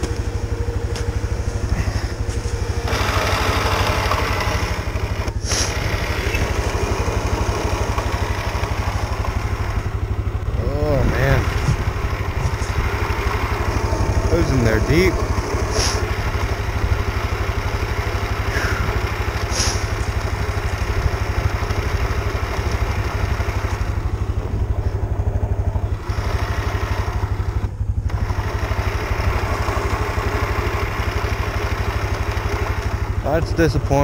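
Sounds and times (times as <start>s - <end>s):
atv engine idling: 0.0s - 34.0s.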